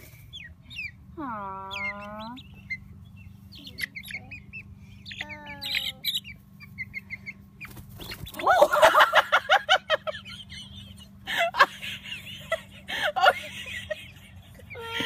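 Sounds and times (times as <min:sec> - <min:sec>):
chickens clucking: 0:00.0 - 0:15.0
wings flapping and squawking: 0:05.6 - 0:08.8.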